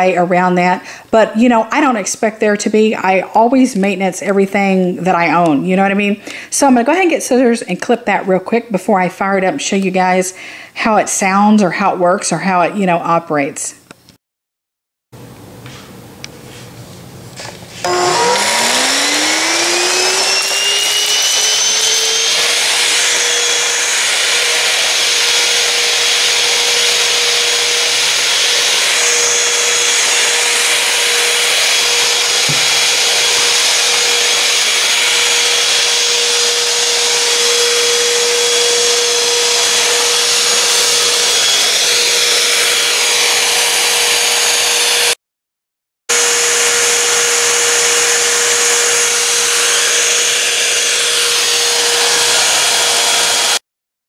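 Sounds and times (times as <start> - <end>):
stick vacuum whirring: 17.4 - 45.2, 46.1 - 53.6.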